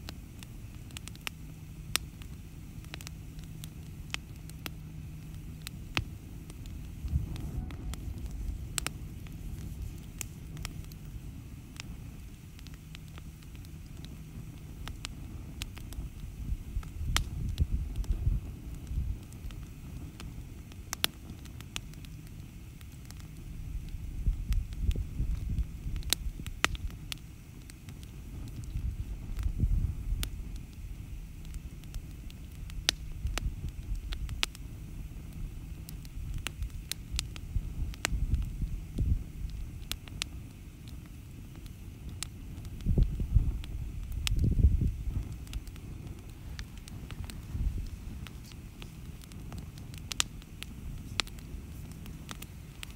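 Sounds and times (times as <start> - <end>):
campfire crackling: 0.0 - 52.9
low gusty rumble: 0.0 - 52.9
low rumble: 3.3 - 12.4.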